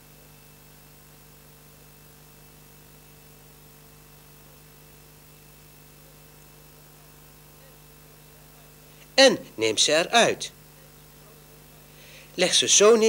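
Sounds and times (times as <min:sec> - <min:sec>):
faint electrical hum: 0:00.0 - 0:13.0
tape hiss: 0:05.1 - 0:13.0.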